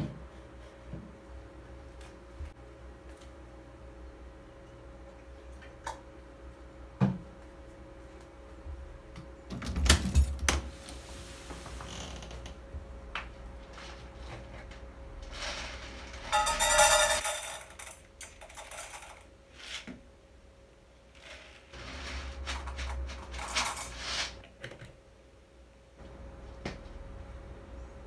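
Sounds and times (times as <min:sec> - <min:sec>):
faint steady hum: 0:00.0 - 0:28.0
cat kibble pouring into metal bowl: 0:21.8 - 0:24.4.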